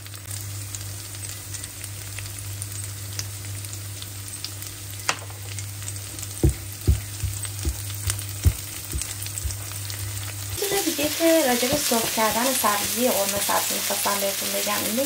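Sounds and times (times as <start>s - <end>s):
herbs sizzling in oil: 0.0s - 15.0s
low hum: 4.6s - 10.6s
spatula knocking against pan: 6.4s - 9.7s.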